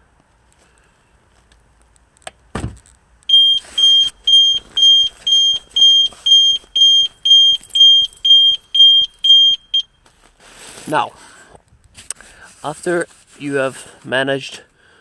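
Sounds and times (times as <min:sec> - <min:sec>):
car alarm beeping: 0:03.3 - 0:10.0.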